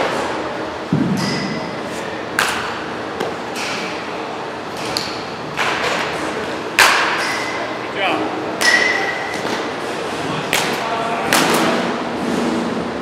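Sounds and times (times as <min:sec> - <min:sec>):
bat hitting balls: 0:01.0 - 0:04.0, 0:06.8 - 0:07.6, 0:08.6 - 0:09.7.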